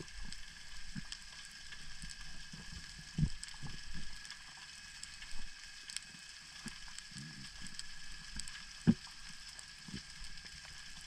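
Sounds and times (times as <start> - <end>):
underwater hiss with crackling clicks: 0.0 - 11.0.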